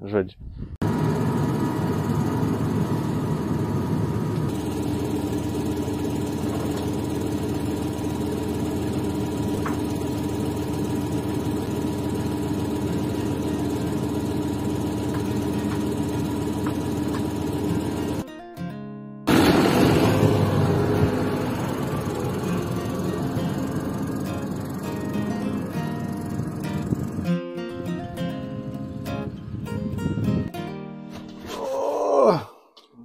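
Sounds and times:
tractor diesel engine running: 0.8 - 18.2, 19.3 - 27.4.

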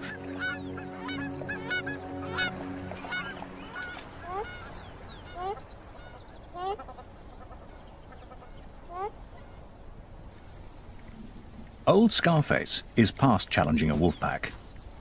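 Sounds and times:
sustained music notes: 0.0 - 5.6
waterfowl calling: 0.0 - 9.8.

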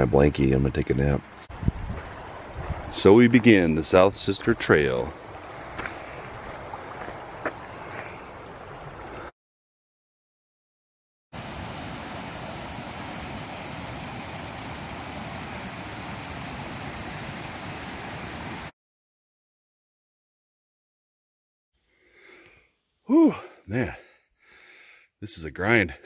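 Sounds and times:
creek rushing over rocks: 1.2 - 9.2, 11.4 - 18.7.

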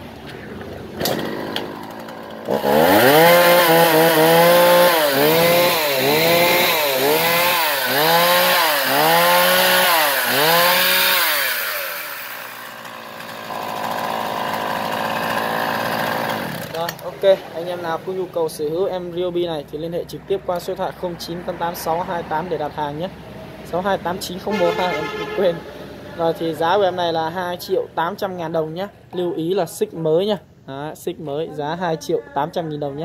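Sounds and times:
chainsaw revving and idling: 1.0 - 18.4.

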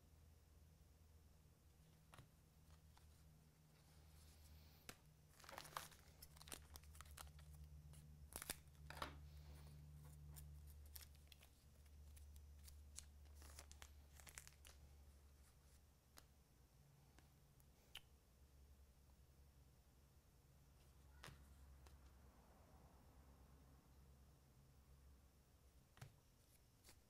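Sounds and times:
low steady hum: 0.0 - 27.0
wrapper and cards rustling: 2.0 - 16.3, 26.4 - 27.0.

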